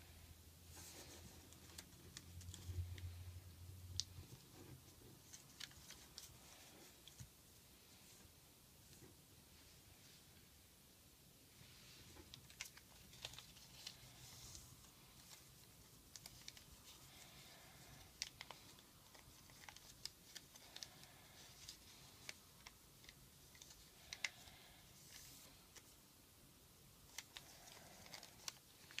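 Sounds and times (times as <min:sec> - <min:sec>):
paper crinkling and clicking: 0:04.0 - 0:06.4, 0:12.2 - 0:25.9, 0:27.1 - 0:29.0.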